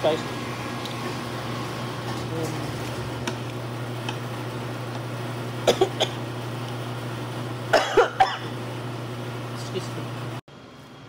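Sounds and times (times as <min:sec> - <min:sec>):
man coughing: 0:05.6 - 0:06.2, 0:07.7 - 0:08.5.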